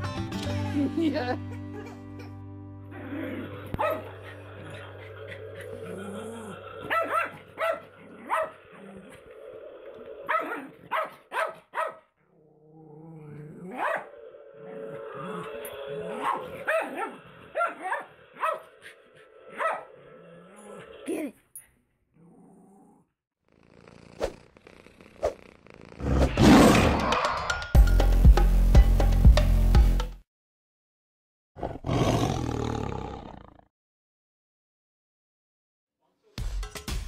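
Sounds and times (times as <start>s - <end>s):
small dog growling: 2.9s - 11.0s, 12.2s - 21.2s, 22.1s - 26.4s
dog barking: 3.8s - 4.4s, 6.8s - 8.6s, 10.3s - 12.1s, 13.7s - 14.1s, 16.1s - 18.7s, 19.5s - 19.9s.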